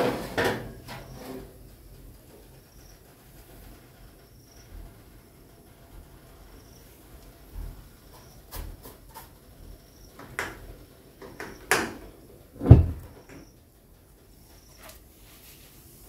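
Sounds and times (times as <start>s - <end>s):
dull thump: 12.6s - 13.2s.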